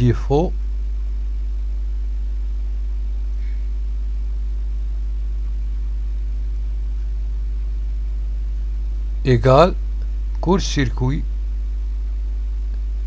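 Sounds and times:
mains hum: 0:00.0 - 0:13.0.

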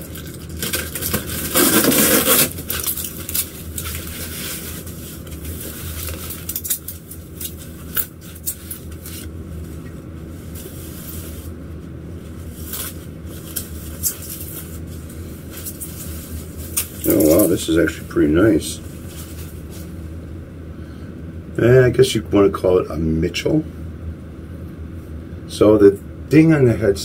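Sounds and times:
plastic bag rustling: 0:00.0 - 0:11.6, 0:12.2 - 0:18.0, 0:18.6 - 0:20.0
cardboard box tearing: 0:00.2 - 0:04.8.

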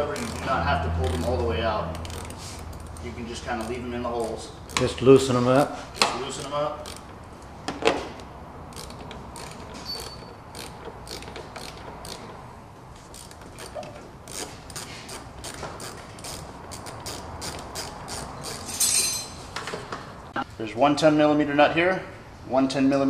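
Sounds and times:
ratchet wrench clicking: 0:00.0 - 0:07.2, 0:08.7 - 0:12.4, 0:13.1 - 0:19.2.

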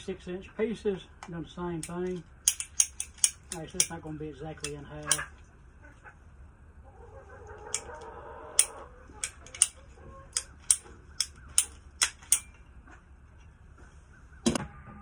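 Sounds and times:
ratcheting pipe cutter clicking: 0:01.8 - 0:04.0, 0:08.6 - 0:12.5.

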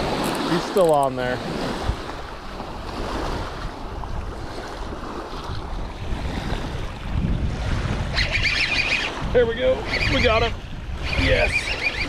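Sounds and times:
waves lapping on rocks: 0:00.0 - 0:12.0
wind rumbling on microphone: 0:00.0 - 0:12.0
high wavering sound: 0:11.0 - 0:12.0.

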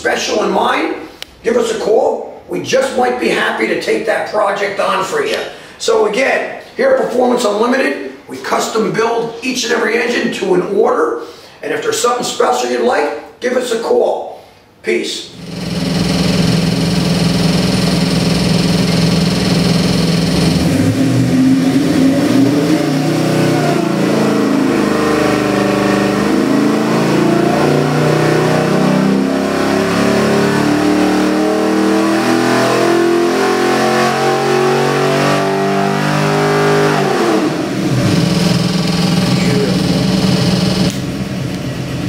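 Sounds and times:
engine idling and revving: 0:15.4 - 0:42.0.

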